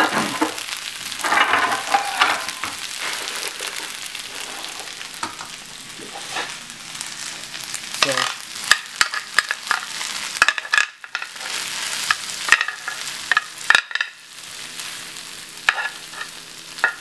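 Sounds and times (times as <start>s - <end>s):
metal spoon scraping frying pan: 15.7s - 17.0s.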